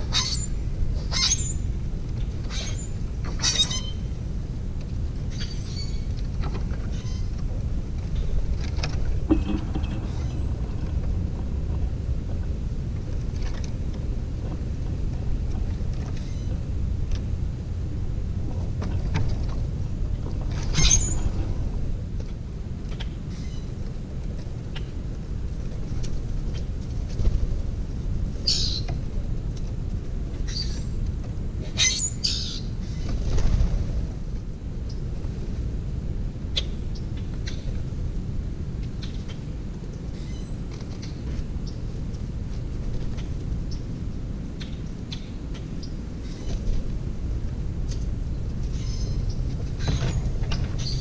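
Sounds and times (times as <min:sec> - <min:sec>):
low outdoor rumble: 0:00.0 - 0:51.0
blackbirds giving short high calls: 0:00.1 - 0:01.6, 0:28.4 - 0:28.9.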